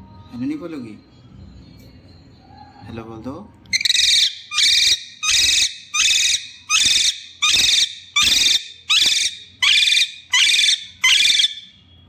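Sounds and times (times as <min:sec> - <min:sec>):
parakeet screeching calls: 0:03.7 - 0:11.7.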